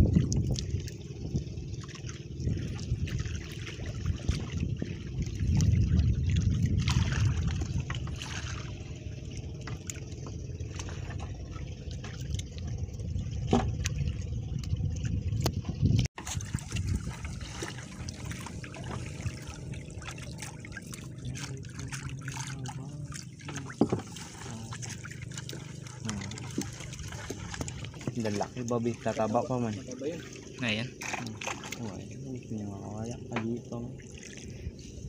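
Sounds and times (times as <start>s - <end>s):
low steady rumble: 0.0s - 35.0s
water trickling off a net: 16.2s - 32.0s.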